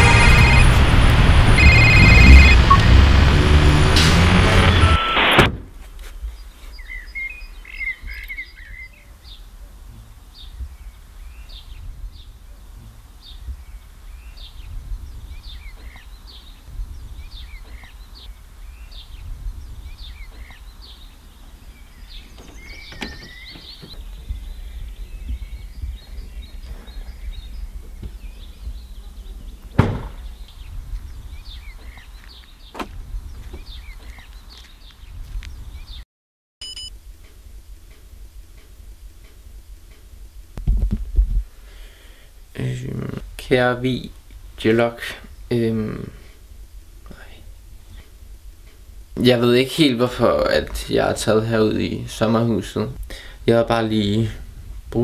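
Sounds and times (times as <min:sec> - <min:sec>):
small birds chirping: 0:00.0 - 0:02.8, 0:06.0 - 0:36.0, 0:41.5 - 0:55.0
car door shutting: 0:03.8 - 0:05.8, 0:22.3 - 0:24.0, 0:29.7 - 0:30.3, 0:32.7 - 0:33.6
wind rumbling on microphone: 0:09.8 - 0:36.0, 0:39.6 - 0:41.6, 0:53.7 - 0:55.0.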